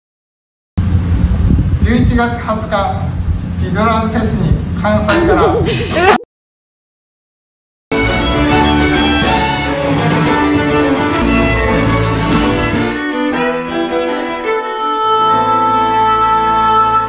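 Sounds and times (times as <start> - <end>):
band playing fiddle music: 7.9 - 15.2.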